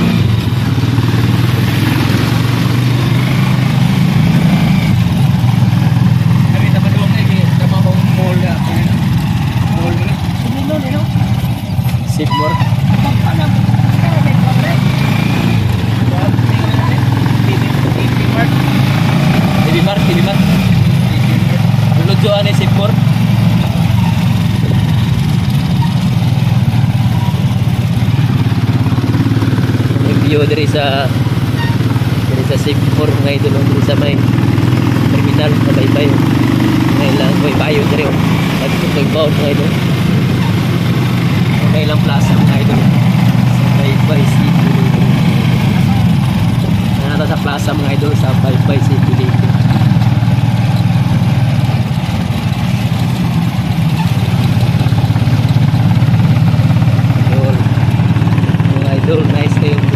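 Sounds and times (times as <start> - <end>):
small motorcycle engine running: 0.0 - 59.9.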